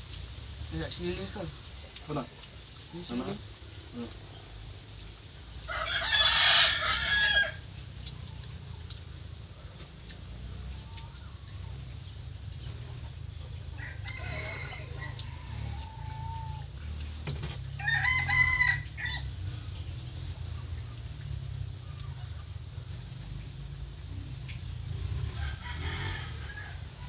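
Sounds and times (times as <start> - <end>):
rooster crowing: 5.6 - 7.7, 13.7 - 17.0, 17.6 - 19.6, 25.0 - 27.0.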